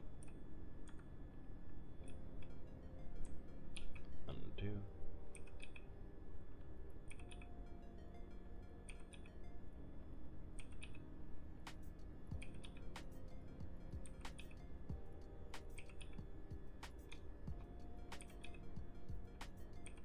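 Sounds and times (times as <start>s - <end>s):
low steady hum: 0.0s - 20.0s
mouse and keyboard clicking: 5.3s - 5.9s, 7.1s - 7.5s, 10.6s - 11.0s, 15.6s - 16.2s.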